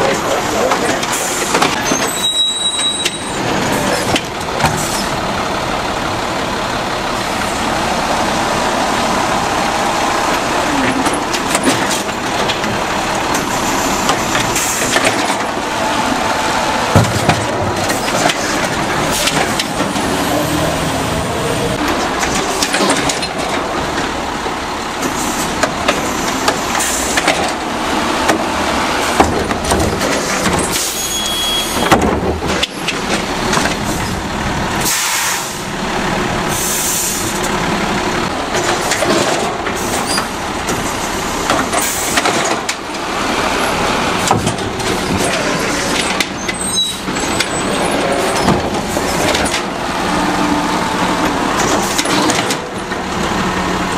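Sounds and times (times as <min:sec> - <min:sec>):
diesel engine running: 0:00.0 - 0:53.9
air brake hisses: 0:34.8 - 0:35.7, 0:36.5 - 0:37.4.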